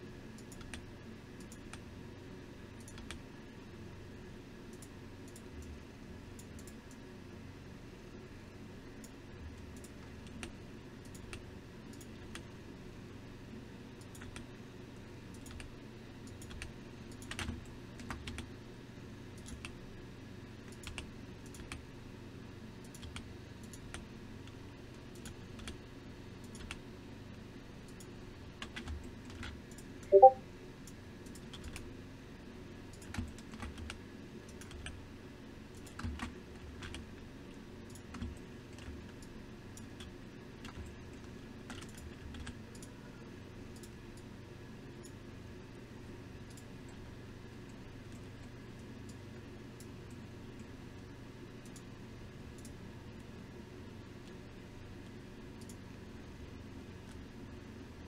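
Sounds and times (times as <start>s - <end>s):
faint low hum: 0.0s - 58.0s
keyboard and mouse clicks: 0.3s - 0.8s, 1.4s - 1.8s, 2.8s - 3.2s, 9.0s - 12.4s, 14.0s - 14.5s, 15.3s - 15.7s, 16.3s - 18.5s, 19.4s - 19.8s, 20.6s - 21.8s, 26.4s - 26.8s, 27.9s - 30.4s, 31.2s - 31.8s, 32.9s - 35.0s, 37.9s - 42.9s.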